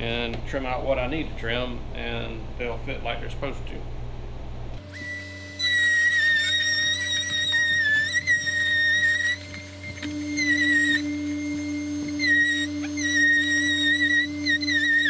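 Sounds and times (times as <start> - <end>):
rotary tool cutting plastic: 4.9 - 15.0.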